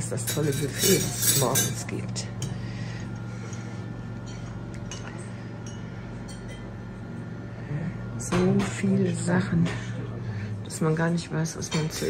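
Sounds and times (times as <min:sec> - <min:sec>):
steady low hum: 0:00.0 - 0:12.0
spoons clinking on ceramic bowls: 0:00.2 - 0:01.9.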